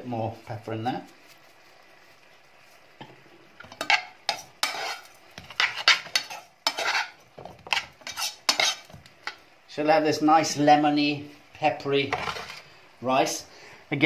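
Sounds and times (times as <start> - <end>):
metal spoon scraping saucepan: 3.7 - 9.4.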